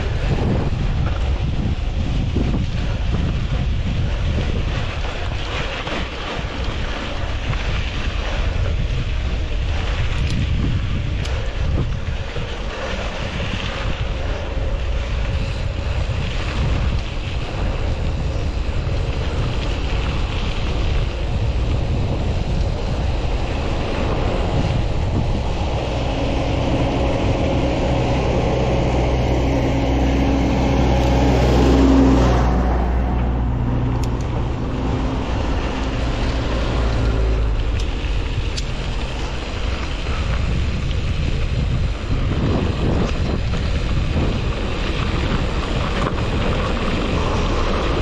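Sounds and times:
bike tyres rumbling on dirt: 0.0 - 48.0
wind buffeting microphone: 0.0 - 48.0
low steady hum: 14.9 - 43.3.

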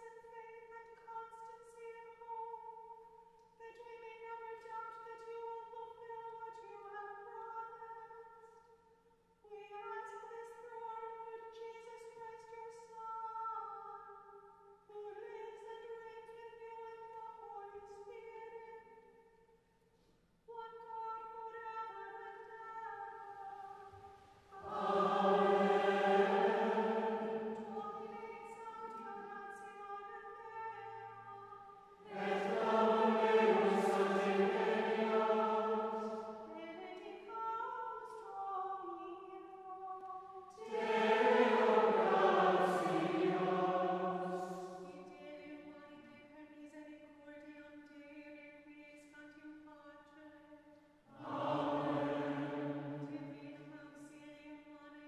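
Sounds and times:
choir chanting: 24.5 - 28.4, 32.0 - 36.5, 40.6 - 45.1, 51.1 - 53.4.

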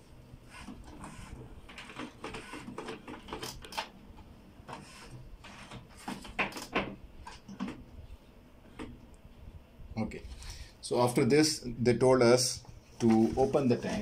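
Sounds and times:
printer clicks and whirs: 0.4 - 4.0
printer sharp clacks: 0.5 - 3.9.

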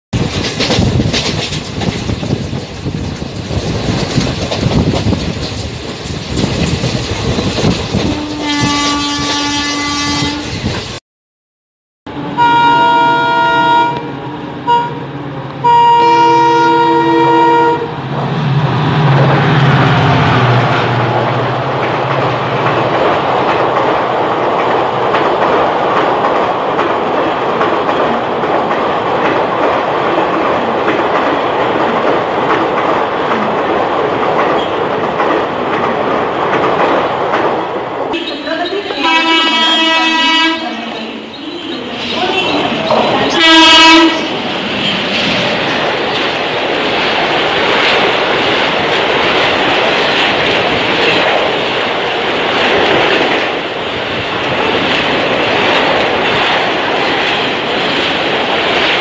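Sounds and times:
train rumbling past: 0.2 - 11.0, 12.1 - 59.0
train wheels rattling on track: 0.2 - 11.0, 12.2 - 59.0
locomotive horn: 8.1 - 10.6, 12.3 - 18.0, 39.0 - 40.9, 43.2 - 44.4.

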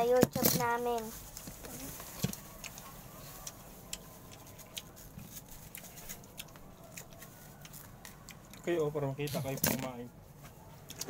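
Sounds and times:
mango being chewed: 2.4 - 9.6.

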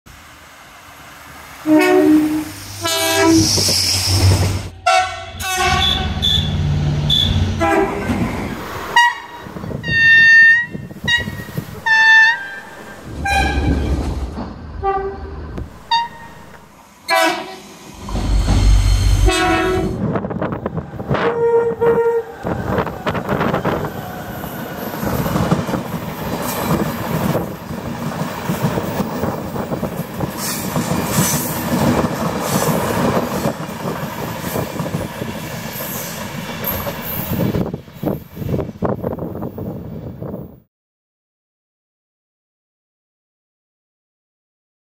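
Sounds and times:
train wheels rumbling on rails: 0.2 - 40.6
train horn blasts: 1.6 - 3.6, 4.7 - 8.1, 8.9 - 13.9, 14.8 - 17.6, 18.7 - 20.0, 21.1 - 22.4.

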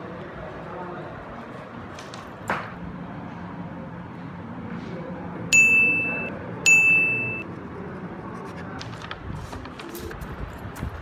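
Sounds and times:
bright high dings: 5.5 - 7.4.

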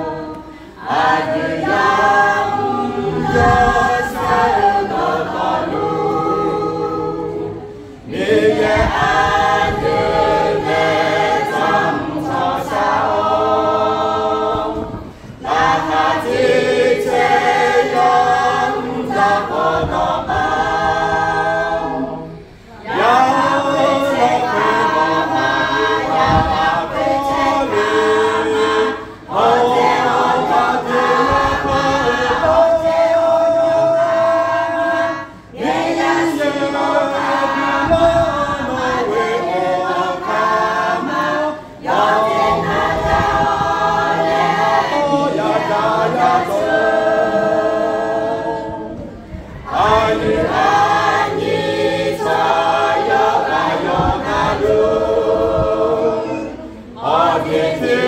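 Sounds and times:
choir singing a hymn unaccompanied: 0.0 - 58.0.

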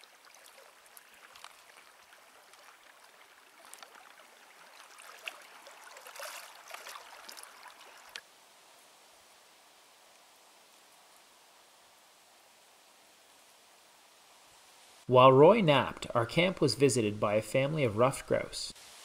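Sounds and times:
small crackles: 0.0 - 8.3
water trickling and lapping: 0.0 - 8.3
faint steady hiss: 0.0 - 19.0.

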